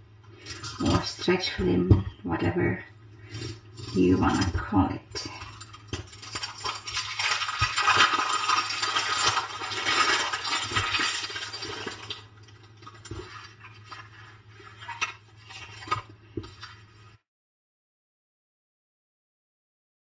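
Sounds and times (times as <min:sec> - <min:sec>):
plastic film crinkling: 0:05.4 - 0:17.2.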